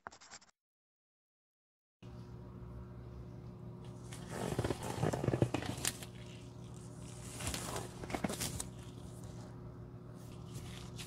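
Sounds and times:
faint steady hum: 2.0 - 11.0
rubber gloves rustling and squeaking: 4.0 - 9.5, 10.2 - 11.0.

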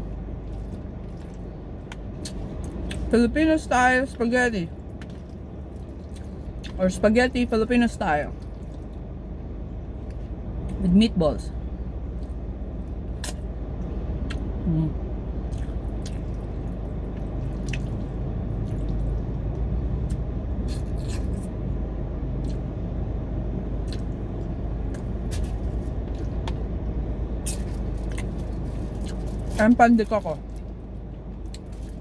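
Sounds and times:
air conditioning hum: 0.0 - 32.0
person chewing food: 0.4 - 3.1, 4.8 - 6.8, 8.4 - 9.1, 14.2 - 14.5, 15.4 - 21.5, 27.4 - 29.6.

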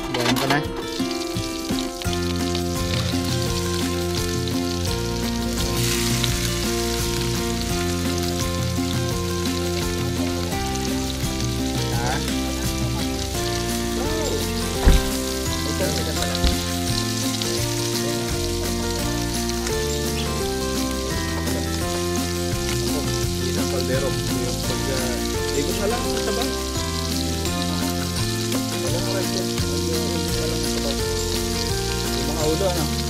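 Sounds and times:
background music: 0.0 - 33.0
food sizzling in a pan: 0.0 - 33.0
short knocks: 14.8 - 15.3.

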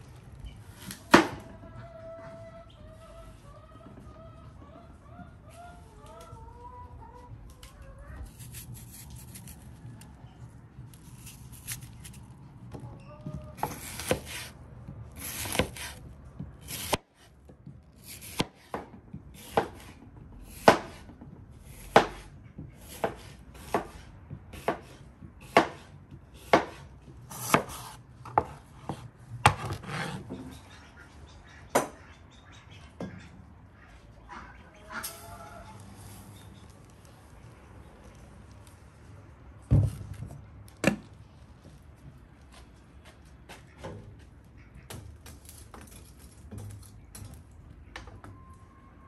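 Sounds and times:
knife cutting and scraping: 8.2 - 10.2, 10.9 - 12.4, 13.6 - 16.0, 16.6 - 17.0, 27.3 - 30.5.

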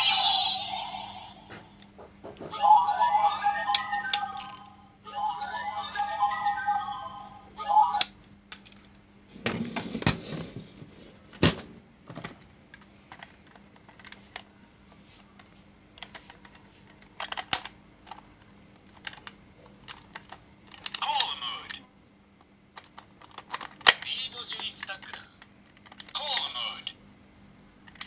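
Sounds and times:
toy electronic sound: 0.0 - 1.4, 2.6 - 8.1
hard plastic toys clattering: 22.8 - 26.1.

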